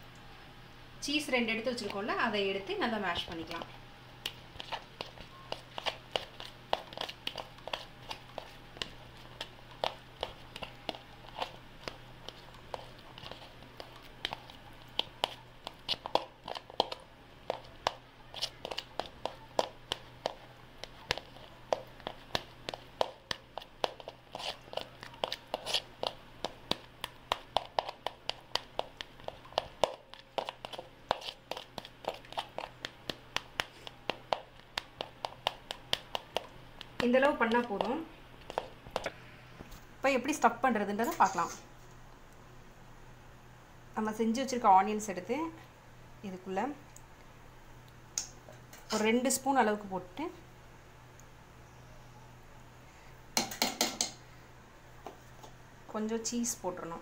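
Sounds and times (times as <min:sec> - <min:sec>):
faint steady hum: 0:00.0 - 0:57.0
spoon scraping a plastic bowl: 0:23.6 - 0:26.2.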